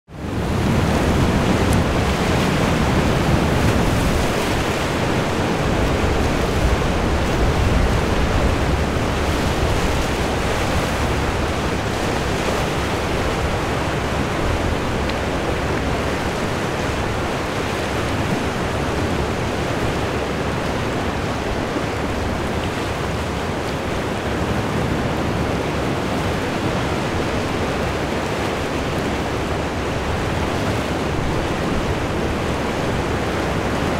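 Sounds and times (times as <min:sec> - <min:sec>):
ocean surf rushing: 0:00.1 - 0:33.9
wind rumbling on microphone: 0:00.1 - 0:33.9.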